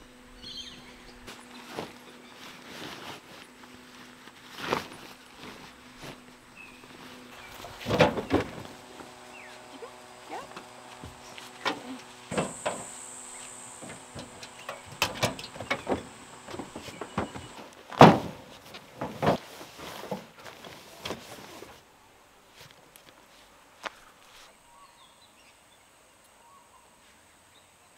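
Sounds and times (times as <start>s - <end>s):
bags and gear thumping: 1.3s - 21.6s.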